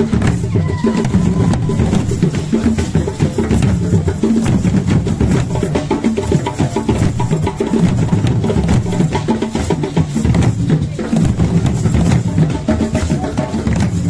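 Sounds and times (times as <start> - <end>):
wooden drums playing: 0.0 - 14.0.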